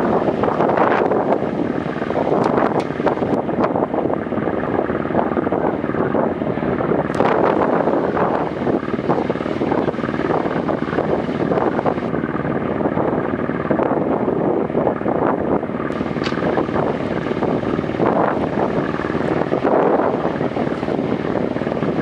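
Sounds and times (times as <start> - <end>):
boat engine chugging: 0.0 - 22.0.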